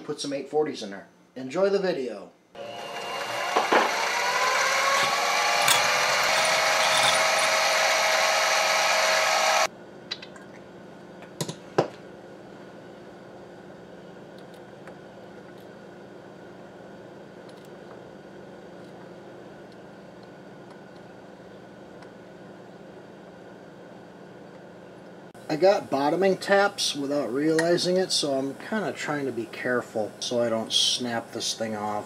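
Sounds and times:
power drill boring steel: 0:02.6 - 0:09.7.

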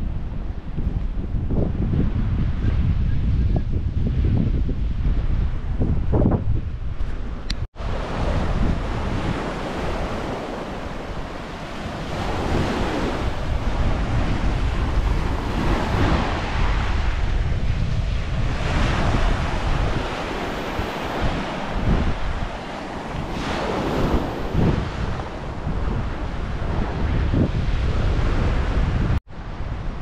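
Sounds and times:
wind buffeting microphone: 0:00.0 - 0:30.0
waves breaking on pebble shore: 0:07.8 - 0:17.0, 0:18.5 - 0:25.1.

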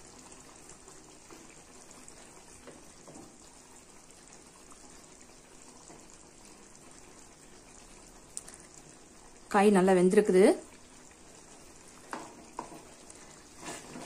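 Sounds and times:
thick gravy bubbling: 0:00.0 - 0:14.0
wooden spatula stirring: 0:00.6 - 0:03.7, 0:11.9 - 0:14.0.

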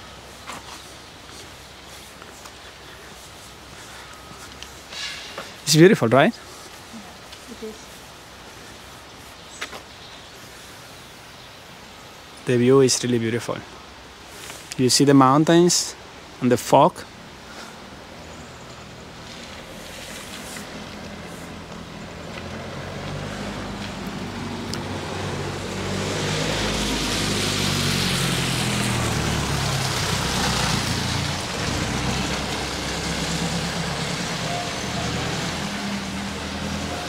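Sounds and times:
tyre hiss on wet road: 0:00.0 - 0:12.9, 0:13.7 - 0:37.0
vehicle engine hum: 0:17.2 - 0:37.0.

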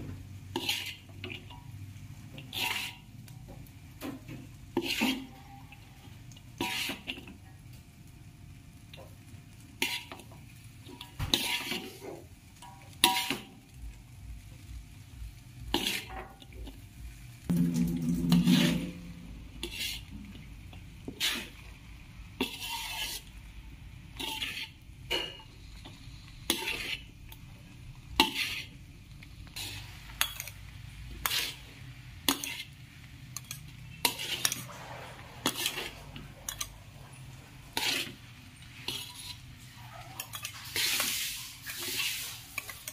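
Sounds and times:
faint sizzle: 0:00.0 - 0:42.9
spatula scraping metal wok: 0:00.3 - 0:07.6, 0:09.0 - 0:13.7, 0:15.5 - 0:42.9
long low sound: 0:17.5 - 0:19.6.

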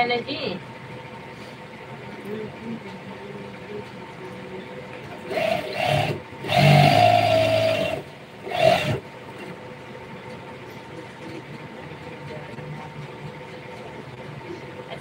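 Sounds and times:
sewing machine stitching: 0:05.2 - 0:09.0.

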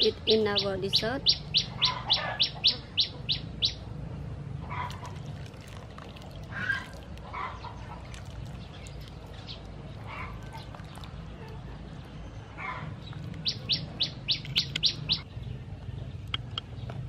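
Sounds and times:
bird chirping fast: 0:12.0 - 0:15.2.

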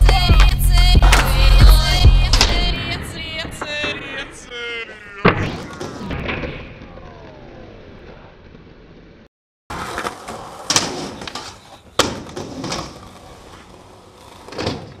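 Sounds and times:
skateboard wheels rolling on concrete: 0:06.8 - 0:15.0
skateboard clacks and slaps: 0:09.7 - 0:15.0.

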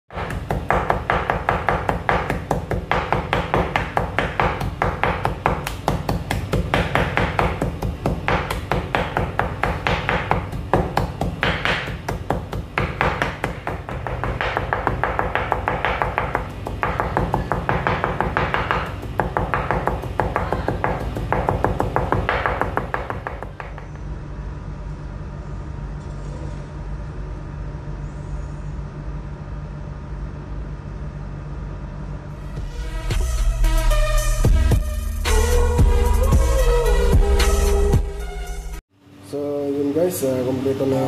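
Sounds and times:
cleaver chopping on wooden board: 0:00.1 - 0:23.9.

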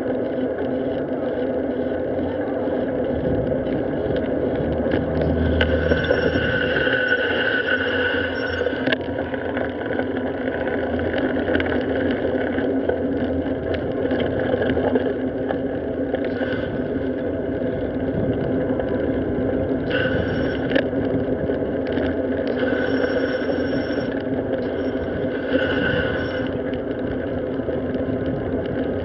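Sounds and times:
road and wind noise: 0:00.0 - 0:29.0
high-pitched squeal: 0:04.6 - 0:09.0, 0:19.9 - 0:20.7, 0:22.5 - 0:26.5.

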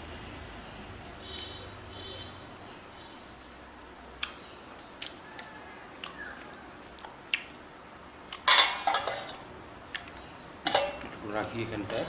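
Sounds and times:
steel plate clattering: 0:10.6 - 0:11.0.

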